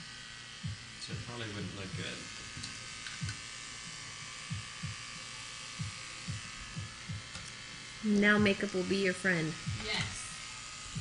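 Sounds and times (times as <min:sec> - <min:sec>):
electric hair clipper buzzing: 0:00.0 - 0:11.0
short low thumps: 0:04.5 - 0:05.1, 0:05.8 - 0:07.3.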